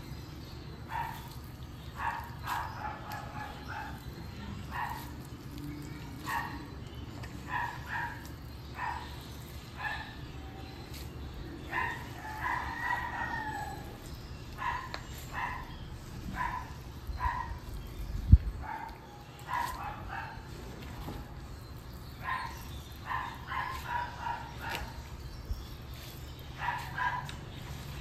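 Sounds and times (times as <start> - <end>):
dog barking: 2.0 - 4.0, 4.6 - 5.1, 7.5 - 9.2, 11.7 - 13.8, 14.6 - 15.7, 16.3 - 17.6, 18.6 - 20.4, 22.2 - 25.0, 26.6 - 27.4.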